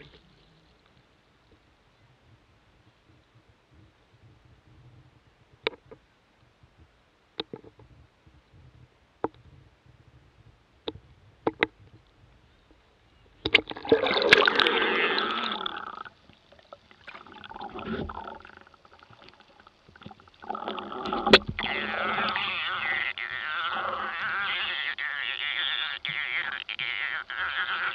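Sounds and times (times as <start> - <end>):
water sloshing and bubbling: 0.0 - 2.4, 13.4 - 25.0
muffled underwater swimming noise: 0.0 - 27.9.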